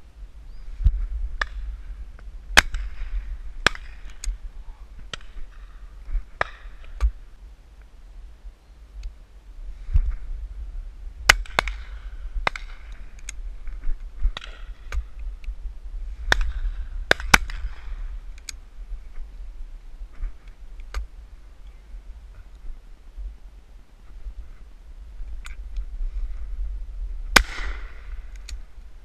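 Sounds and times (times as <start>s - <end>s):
wind buffeting microphone: 0.0s - 7.4s, 8.2s - 29.0s
shotgun shots: 27.3s - 28.1s.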